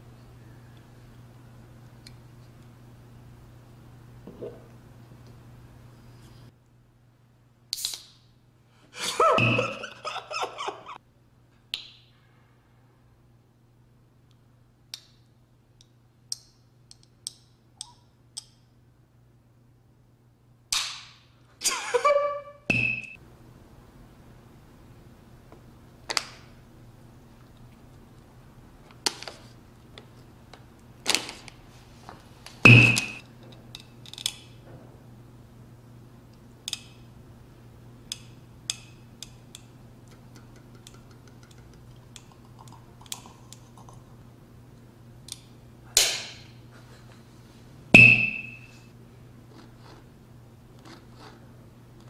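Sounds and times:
squeaky toy hammer hits: 32.7s - 33.2s
clicks and clinks of eating: 38.2s - 44.0s.

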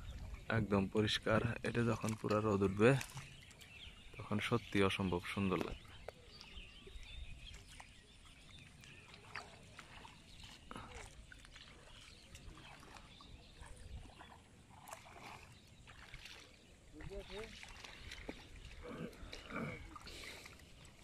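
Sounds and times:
splashes: 1.8s - 3.6s, 7.4s - 21.0s.

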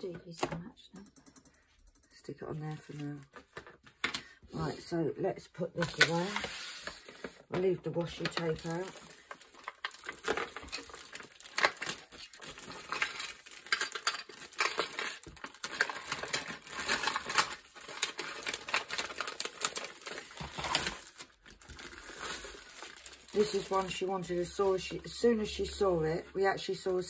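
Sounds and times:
plastic wrapping crinkling: 5.8s - 25.2s.

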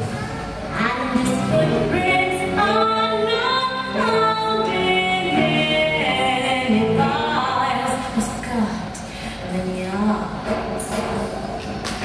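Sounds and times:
music: 0.0s - 12.0s
woman singing long notes: 0.8s - 8.4s.

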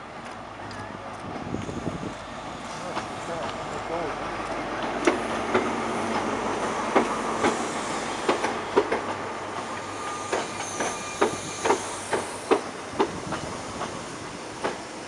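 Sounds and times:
train rolling noise: 0.0s - 15.0s
train wheels clacking over rail joints: 4.4s - 14.0s, 14.6s - 15.0s
faint wheel squeal: 9.9s - 12.1s.

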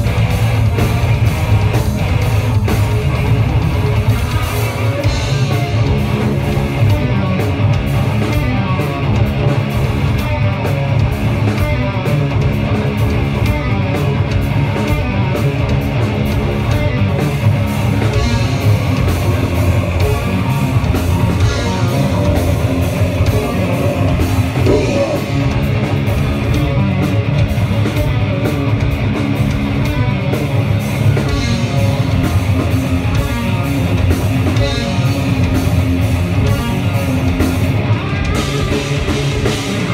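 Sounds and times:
rock band playing heavy song: 0.0s - 39.9s.

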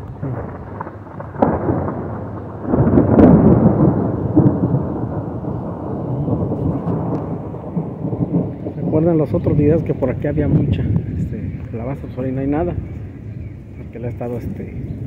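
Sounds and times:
thunder rumbling: 0.0s - 15.0s.

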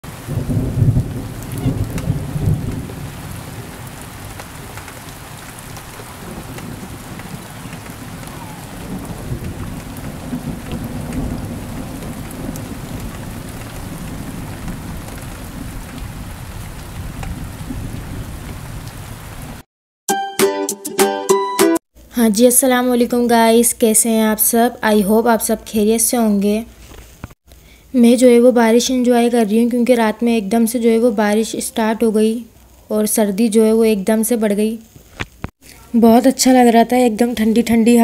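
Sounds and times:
rain hissing: 0.0s - 19.6s
thunder rumble: 0.1s - 19.6s.

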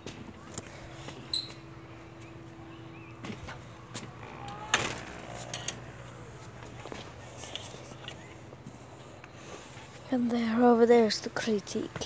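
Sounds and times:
door banging: 4.0s - 6.1s.

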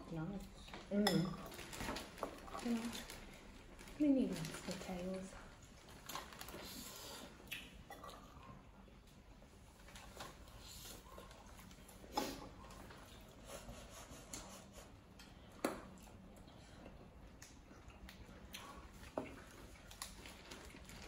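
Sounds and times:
chewing and wet smacks: 7.2s - 9.2s, 15.8s - 21.0s.

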